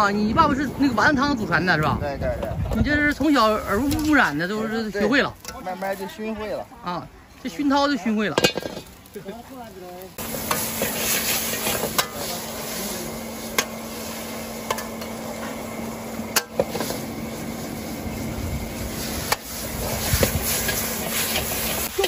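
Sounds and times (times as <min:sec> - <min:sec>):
food sizzling in a wok: 0:03.1 - 0:22.0
ladle scraping and knocking pan: 0:08.4 - 0:08.9.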